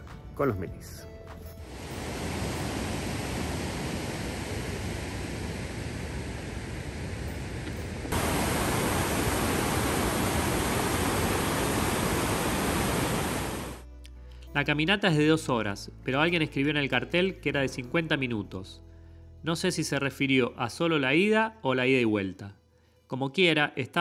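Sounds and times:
stream rushing over rocks: 1.7 - 13.8.

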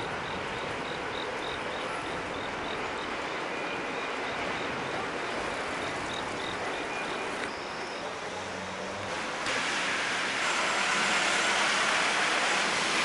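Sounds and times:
wet street noise: 0.0 - 13.0
rain hissing: 9.1 - 13.0.

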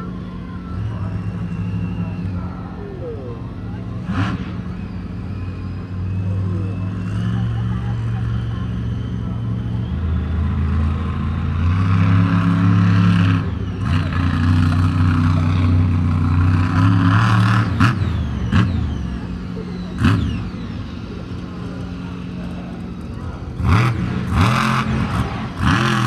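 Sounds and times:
monster truck engine revving: 0.0 - 26.0.

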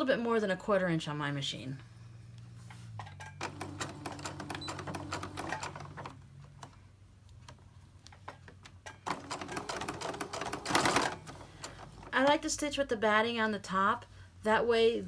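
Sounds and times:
sewing machine stitching: 3.1 - 6.8, 8.8 - 12.2.

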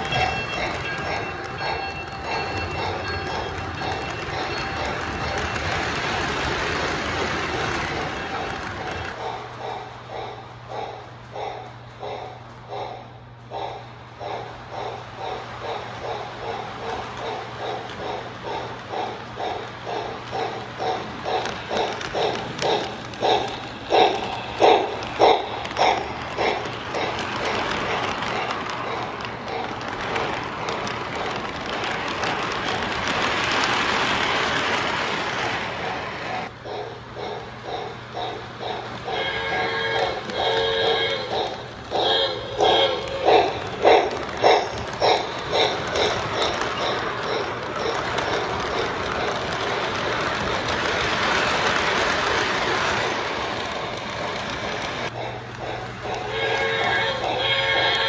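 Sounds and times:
model train wheels clattering: 0.0 - 12.3, 14.2 - 58.0
clicks at rail joints: 14.8 - 36.5, 41.3 - 57.3.

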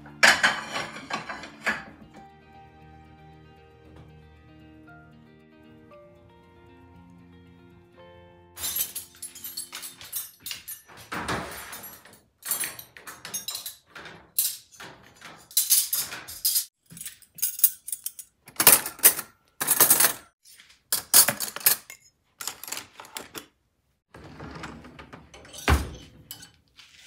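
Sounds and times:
cutlery clinking and jangling: 0.1 - 2.0, 8.6 - 23.4, 25.4 - 26.7.

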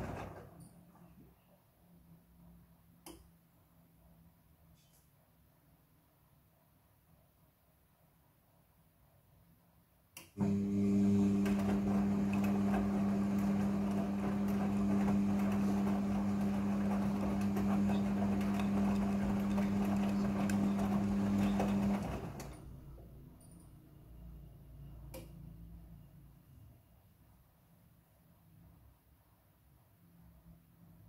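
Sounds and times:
washing machine motor hum: 0.0 - 0.6, 10.4 - 23.3.

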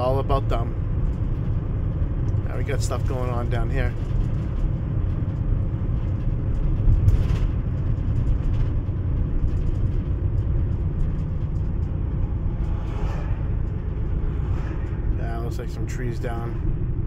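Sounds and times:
road and engine noise in car: 0.0 - 17.0.

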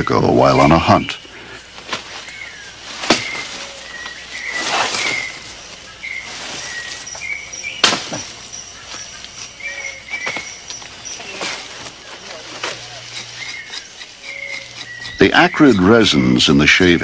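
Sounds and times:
birds chirping: 0.0 - 17.0
machete chopping vine: 3.0 - 3.5, 7.8 - 8.3.

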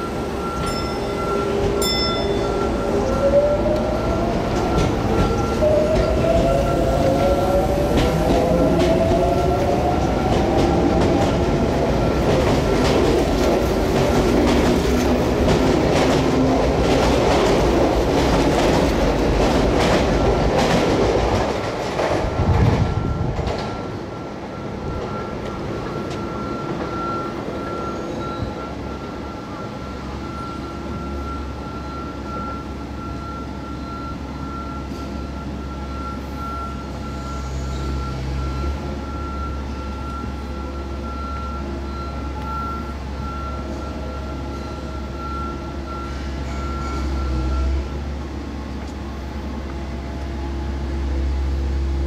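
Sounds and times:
wheels clacking over rail joints: 7.9 - 23.9.

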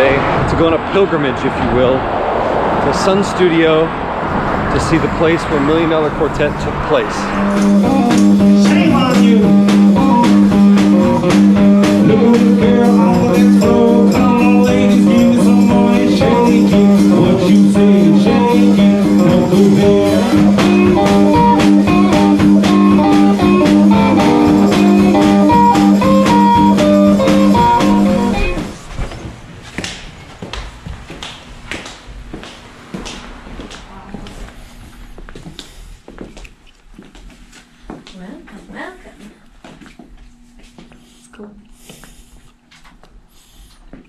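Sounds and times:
guitar blues music: 6.7 - 28.8.

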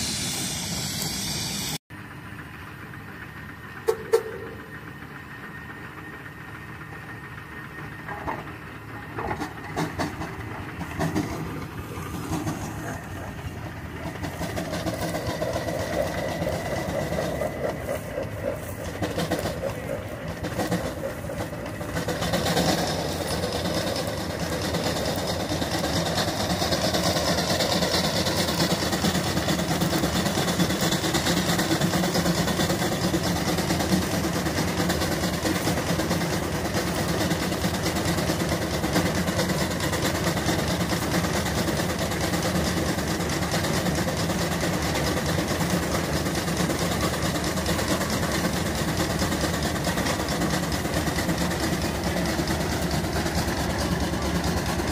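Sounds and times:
steady hiss: 0.0 - 1.8
steam traction engine working: 0.0 - 54.9.

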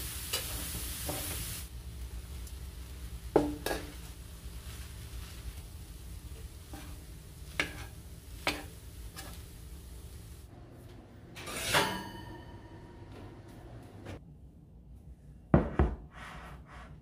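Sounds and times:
spatula stirring in frying pan: 3.2 - 10.2.

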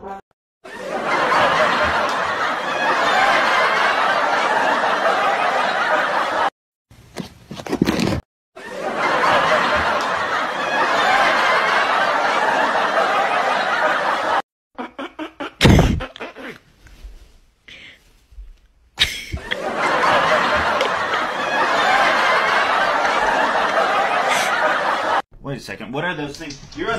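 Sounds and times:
laugh track crowd laughter: 0.6 - 6.5, 8.6 - 16.6, 19.0 - 25.2.

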